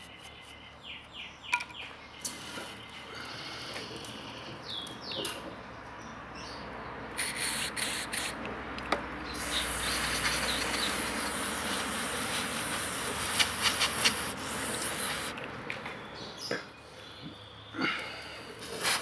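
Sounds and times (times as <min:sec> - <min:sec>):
aerosol spray hissing: 0:07.2 - 0:08.4, 0:09.3 - 0:15.4
sputtering crackle: 0:09.3 - 0:15.4.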